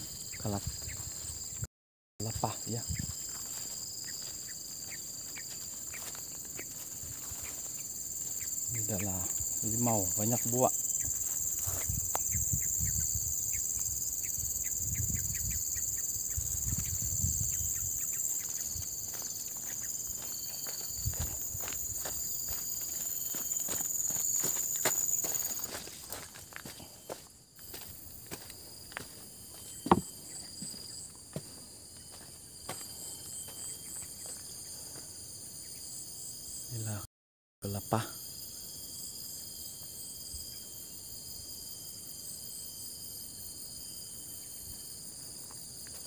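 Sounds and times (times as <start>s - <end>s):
high-pitched insect drone: 0.0s - 46.0s
footsteps through undergrowth: 0.4s - 12.4s, 18.1s - 35.2s.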